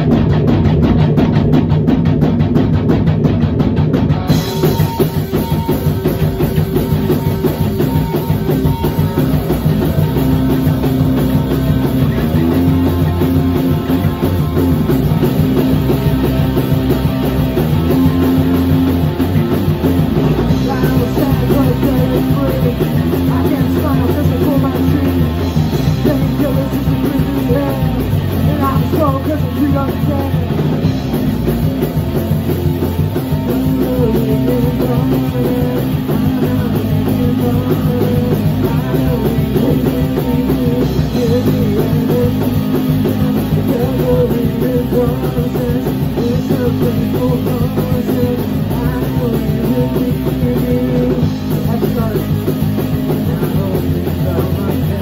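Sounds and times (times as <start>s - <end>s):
drums and cymbals: 0.0s - 55.0s
guitar: 0.0s - 55.0s
rock band playing live: 0.0s - 55.0s.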